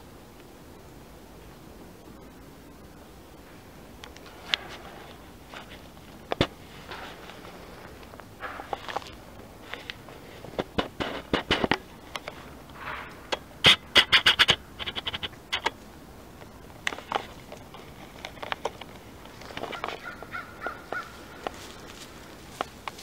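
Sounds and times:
dry leaves crackling underfoot: 4.1 - 13.3, 16.4 - 23.0
twigs snapping: 16.4 - 23.0.

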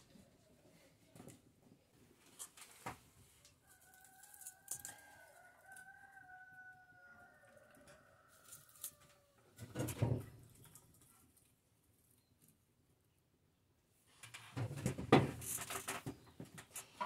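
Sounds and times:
distant rooster crowing: 3.6 - 9.5.

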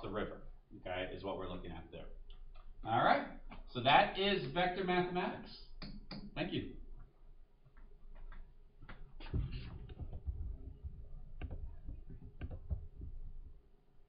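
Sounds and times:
soft knocks on desk: 9.2 - 13.4
low thumps: 9.2 - 13.6.

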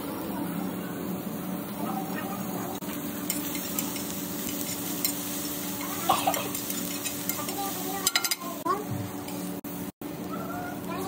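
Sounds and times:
food sizzling: 0.0 - 11.0
metal clicks on griddle: 5.8 - 8.5.

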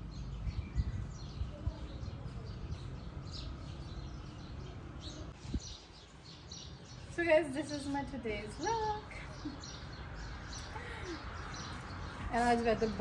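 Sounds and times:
birds chirping: 0.0 - 13.0
wind on microphone: 0.2 - 4.4, 5.0 - 6.7.

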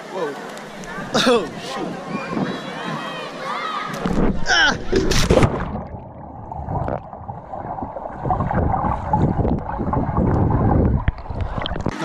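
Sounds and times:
air bubbling underwater: 4.0 - 12.0
muffled underwater rumble: 4.0 - 12.0.

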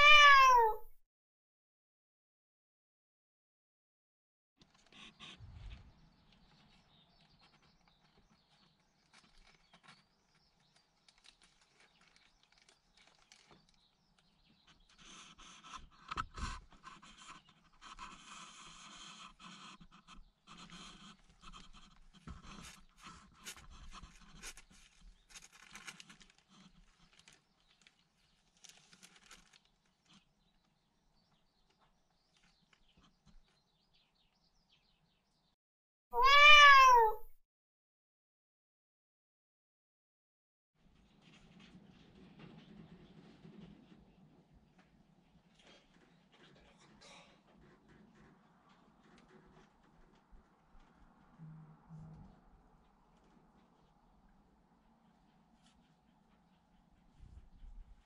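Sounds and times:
faint rustling and scraping: 4.6 - 34.0, 40.8 - 58.0.

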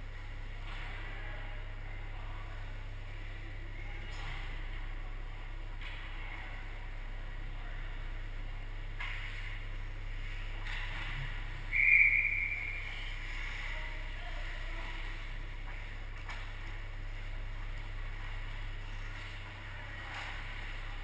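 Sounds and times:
low hum: 0.0 - 21.0
referee's whistle blown: 11.7 - 13.1.

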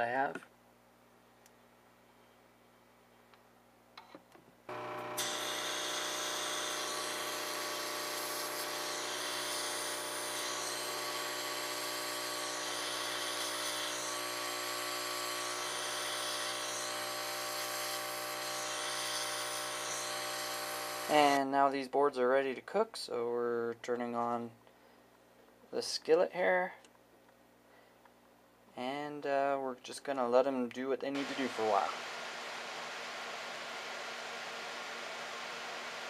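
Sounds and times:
vacuum pump humming: 4.7 - 21.1, 31.2 - 36.0.

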